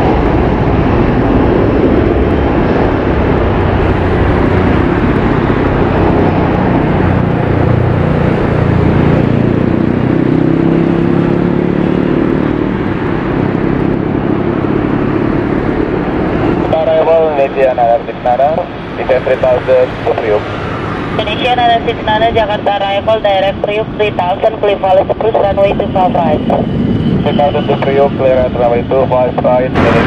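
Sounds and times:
jet engine takeoff roar: 0.0s - 30.0s.

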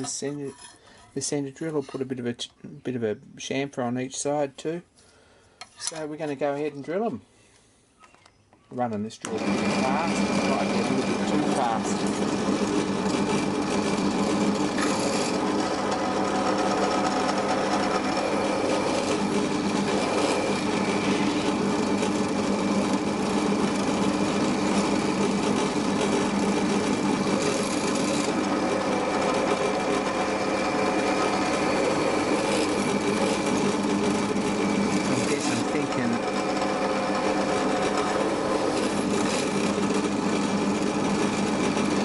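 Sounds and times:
drill press motor hum and whine: 9.2s - 42.0s
drill cutting into steel sheet: 9.4s - 42.0s.

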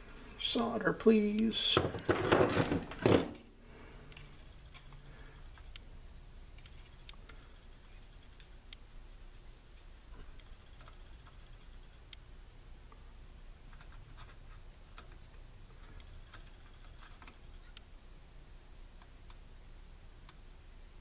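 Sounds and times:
handling noise: 1.2s - 3.5s
soldering ticks and clicks: 6.5s - 8.9s, 10.2s - 12.3s, 15.9s - 17.9s, 20.2s - 20.5s.

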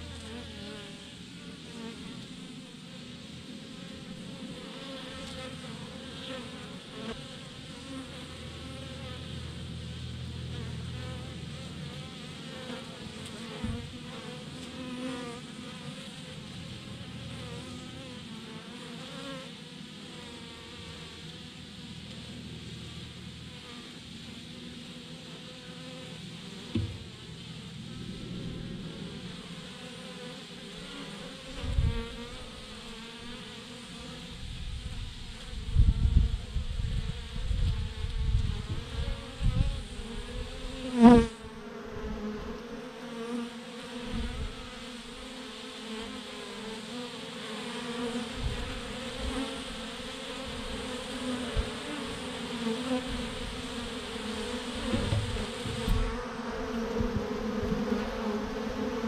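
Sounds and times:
bees buzzing: 0.0s - 59.0s
low thumps: 26.7s - 29.9s, 54.8s - 56.1s
loud wavering sound: 26.9s - 30.0s.

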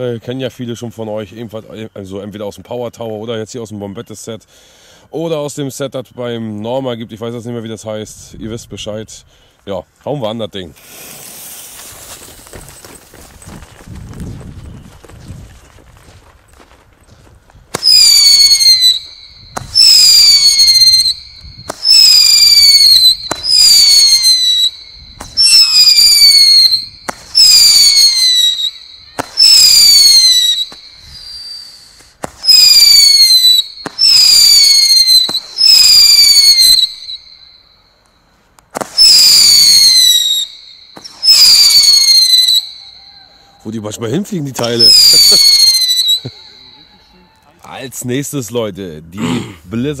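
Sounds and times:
firework shots cracking and whistling: 10.8s - 13.7s, 17.6s - 47.2s.

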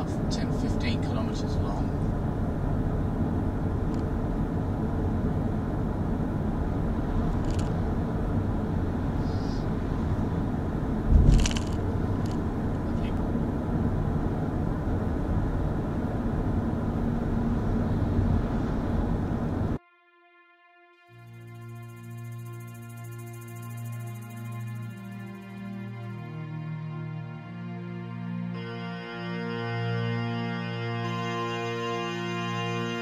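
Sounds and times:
road and wind noise in car: 0.0s - 19.8s.

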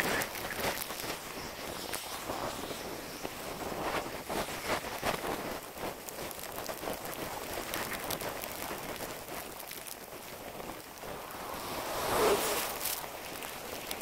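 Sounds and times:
wind on microphone: 10.3s - 14.0s
snowboard scraping over snow: 10.4s - 14.0s.

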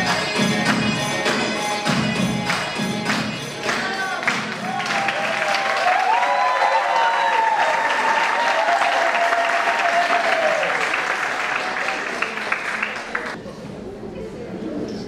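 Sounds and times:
audience applauding: 2.5s - 13.4s.

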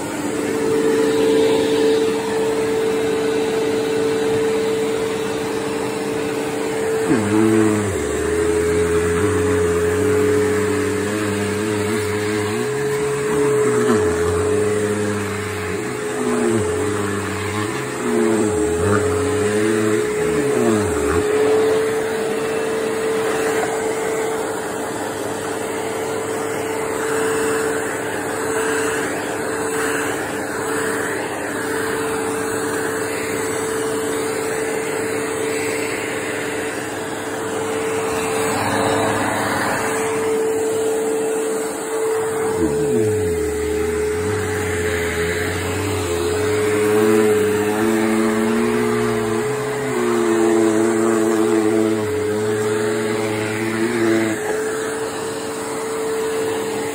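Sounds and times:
low hum: 0.0s - 24.6s
vacuum cleaner motor whine: 0.0s - 56.9s.

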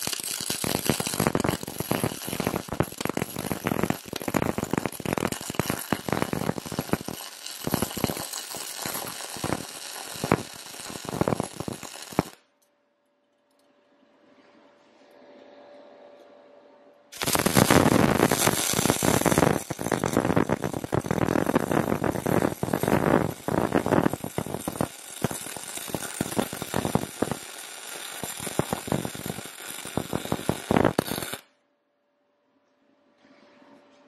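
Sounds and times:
welding arc crackling: 0.0s - 12.4s, 17.2s - 31.5s.

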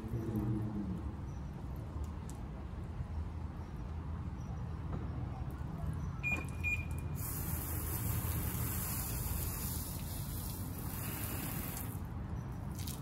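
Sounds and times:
water spraying: 7.2s - 12.1s.

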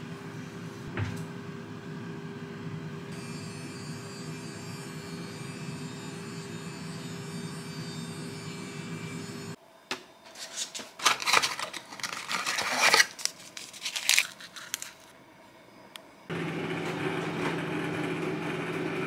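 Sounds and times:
paper packaging rustling: 10.3s - 15.1s.

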